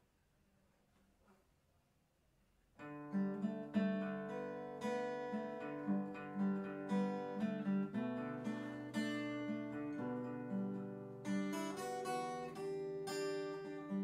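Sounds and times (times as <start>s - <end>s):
plucked acoustic guitar: 2.8s - 14.0s.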